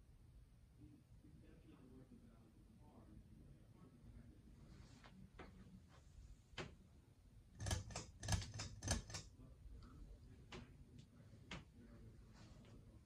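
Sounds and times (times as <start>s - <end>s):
faint steady hum: 0.0s - 13.0s
light clicks and taps: 7.6s - 11.9s.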